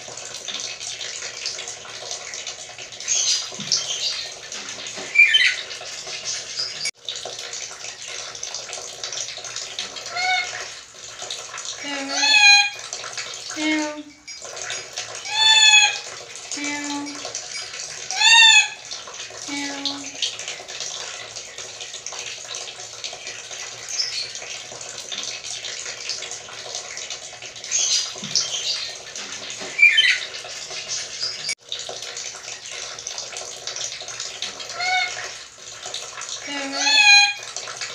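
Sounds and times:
parrot mewing calls: 5.1s - 5.6s, 10.1s - 10.6s, 11.8s - 12.8s, 15.3s - 16.0s, 18.1s - 18.8s, 29.8s - 30.3s, 34.7s - 35.2s, 36.4s - 37.4s.

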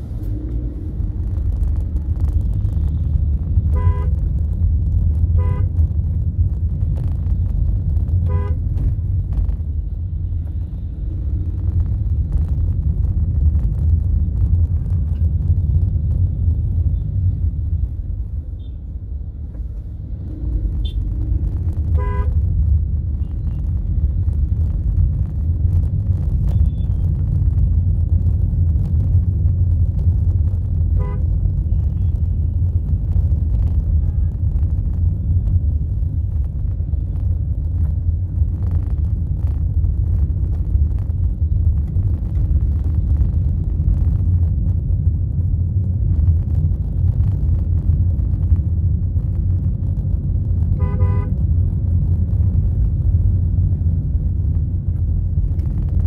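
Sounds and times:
vehicle rumble in traffic: 0.0s - 56.0s
car horn toots: 3.7s - 4.2s, 50.8s - 51.3s.

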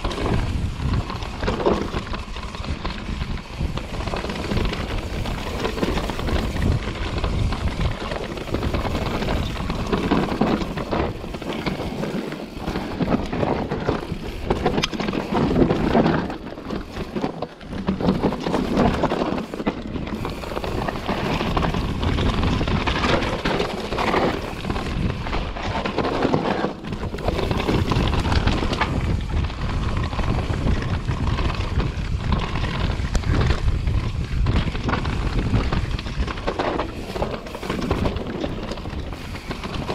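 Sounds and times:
bike rattling over bumps: 0.0s - 39.9s
wind buffeting microphone: 0.0s - 39.9s
tyres crunching over stones: 34.1s - 39.9s.

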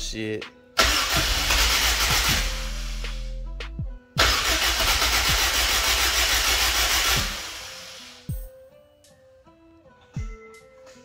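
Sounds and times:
car engine cranking on starter: 0.8s - 3.1s, 4.2s - 8.0s.

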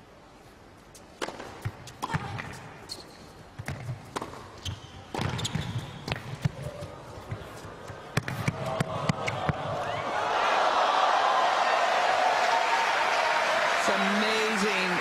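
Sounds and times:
racket striking tennis ball: 1.2s - 2.6s, 3.6s - 9.7s
ball bouncing on hard court: 1.2s - 2.7s, 3.6s - 9.8s
crowd noise: 6.8s - 15.0s.

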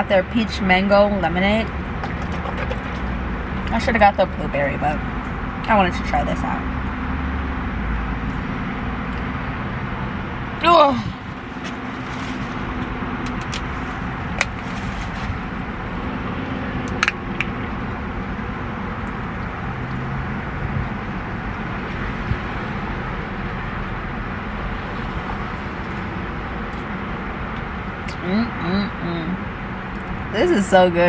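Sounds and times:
car cabin hum: 0.1s - 6.6s.

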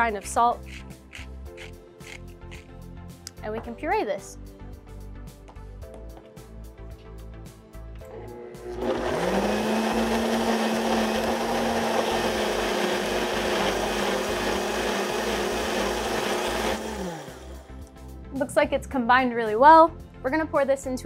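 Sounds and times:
blender motor whine: 8.0s - 17.8s.

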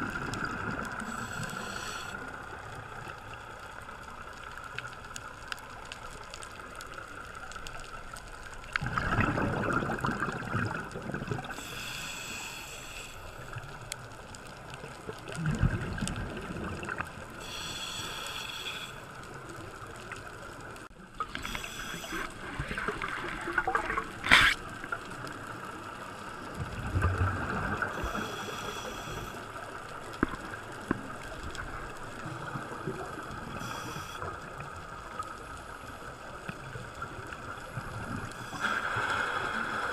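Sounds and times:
regulator hissing inhalations: 1.0s - 2.2s, 11.5s - 13.6s, 17.4s - 19.1s, 21.4s - 22.3s, 28.0s - 29.5s, 33.6s - 34.3s
bubbling exhalations: 8.8s - 11.5s.

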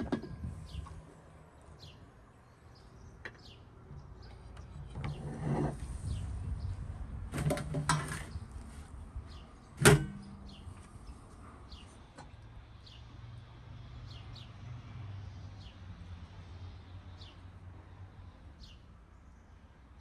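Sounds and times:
small birds chirping: 0.4s - 6.8s, 8.2s - 13.2s, 18.2s - 20.0s.

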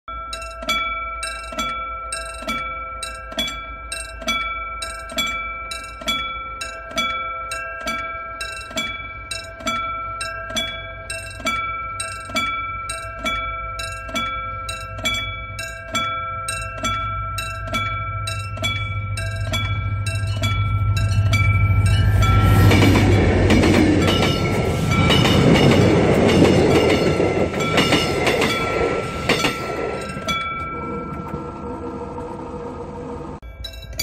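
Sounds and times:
level crossing warning bell: 0.1s - 34.0s
diesel locomotive rumble: 18.8s - 33.4s.

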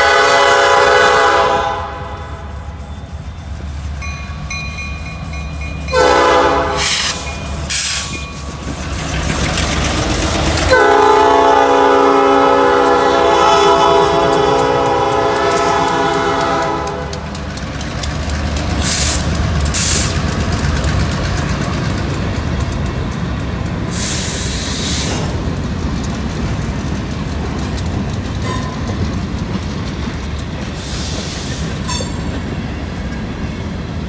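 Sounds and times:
locomotive horn blasts: 0.0s - 2.9s, 5.9s - 8.0s, 10.7s - 17.3s
low rumble of diesel engines: 0.0s - 34.0s
train wheels clicking over rail joints: 0.0s - 34.0s.

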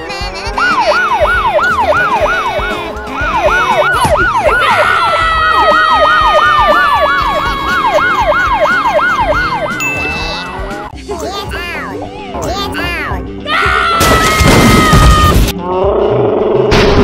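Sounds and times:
steady siren tone: 0.6s - 9.8s
police siren yelping: 0.6s - 10.9s.

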